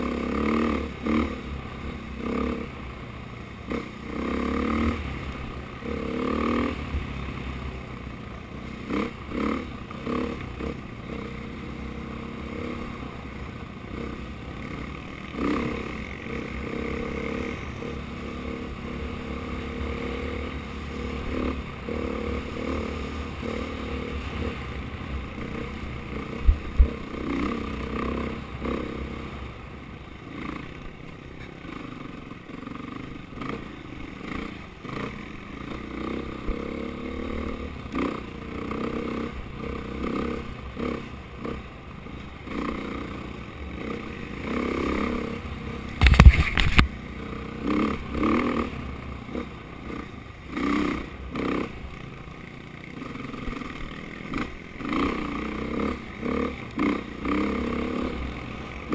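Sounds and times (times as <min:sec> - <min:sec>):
dirt bike engine revving: 0:00.0 - 0:31.0, 0:31.6 - 0:58.9
sharp thumps: 0:46.0 - 0:46.9
bike clattering over rough ground: 0:46.0 - 0:47.0.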